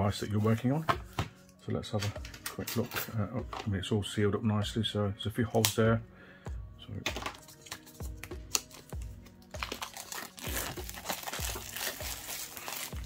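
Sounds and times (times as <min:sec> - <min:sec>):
background music with steady beat: 0:00.0 - 0:13.0
plastic wrap crinkling: 0:07.5 - 0:13.0.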